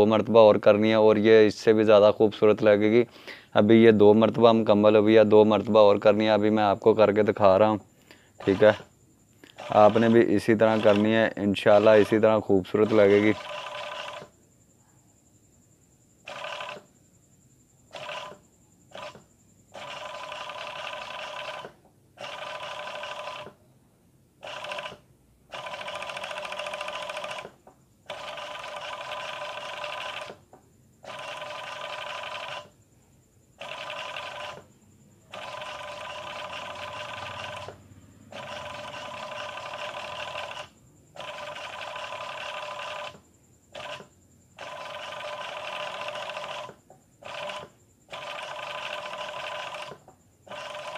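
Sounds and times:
sewing machine stitching: 0:08.4 - 0:08.9, 0:09.6 - 0:12.2, 0:12.8 - 0:14.3, 0:16.3 - 0:16.9, 0:17.9 - 0:19.2, 0:19.8 - 0:23.6, 0:24.4 - 0:30.4, 0:31.0 - 0:32.7, 0:33.6 - 0:34.7, 0:35.3 - 0:37.8, 0:38.4 - 0:43.2, 0:43.8 - 0:50.9.

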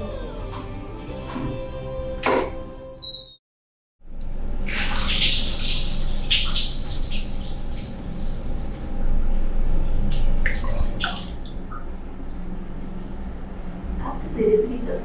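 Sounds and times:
water splashing on skin and tiles: 0:04.7 - 0:12.5
water dripping: 0:04.7 - 0:13.3.

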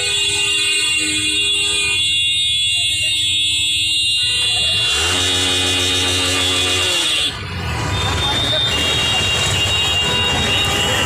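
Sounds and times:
vehicle horns: 0:00.0 - 0:11.0
long deep horn blast: 0:04.9 - 0:07.3.

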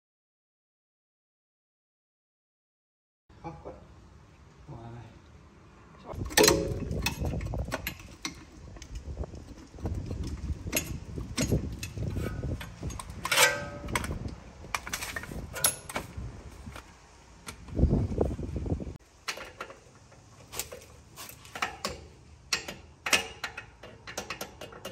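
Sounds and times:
metal tools clanking: 0:06.2 - 0:16.1.

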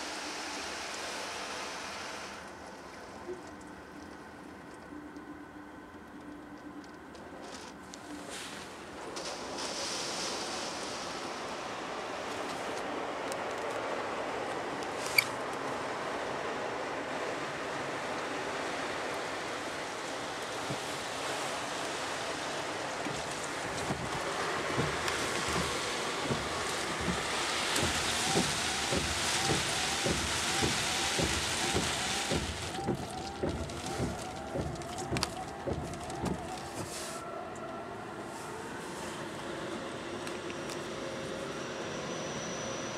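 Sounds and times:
car wash water spray and brush: 0:00.0 - 0:02.6, 0:07.5 - 0:37.3.

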